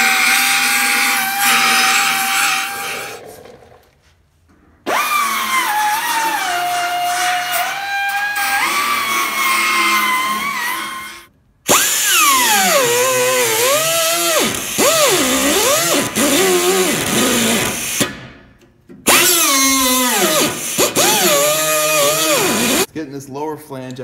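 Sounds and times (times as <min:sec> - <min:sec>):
pneumatic belt sander grinding metal: 0:19.1 - 0:22.9.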